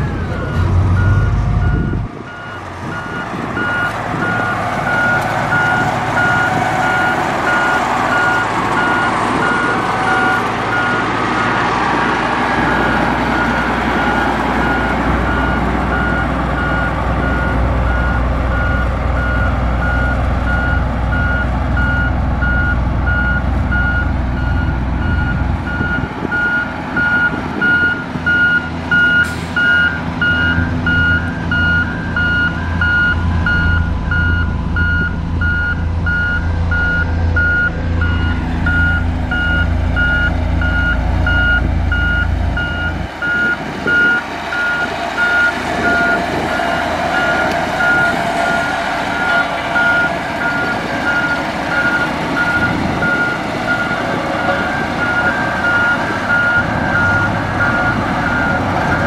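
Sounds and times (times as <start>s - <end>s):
diesel engine rumble: 0.0s - 59.0s
reversing alarm beeping: 0.3s - 11.1s, 12.6s - 59.0s.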